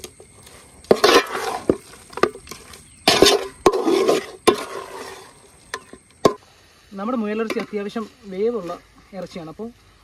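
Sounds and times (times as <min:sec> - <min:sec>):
ladle scraping metal pot: 0:00.9 - 0:05.9.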